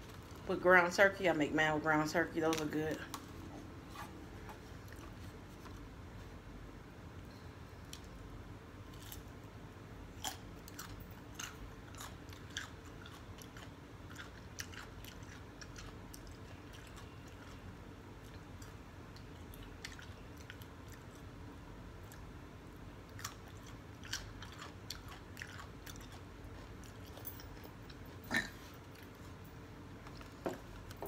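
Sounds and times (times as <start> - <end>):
crunching and chewing cucumber: 8.8 - 31.0.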